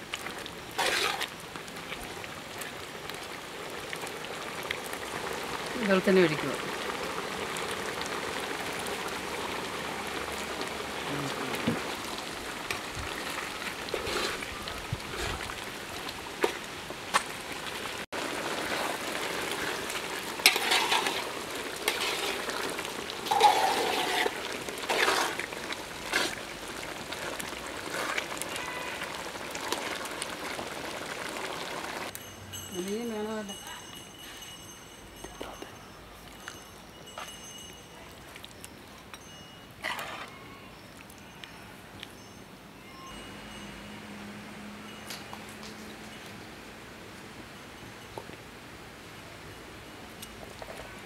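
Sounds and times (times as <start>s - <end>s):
curry bubbling with a hiss: 0.0s - 32.1s
metal spoon scraping a pot: 0.8s - 1.3s, 20.4s - 22.6s, 23.2s - 25.5s, 39.8s - 40.4s.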